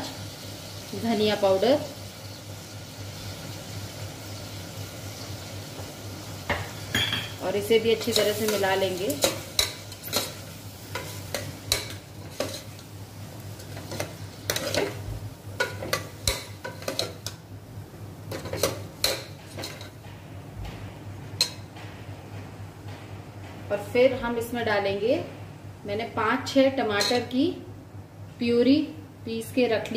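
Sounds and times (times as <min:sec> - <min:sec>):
ladle scraping and clinking pot: 0:11.0 - 0:12.8.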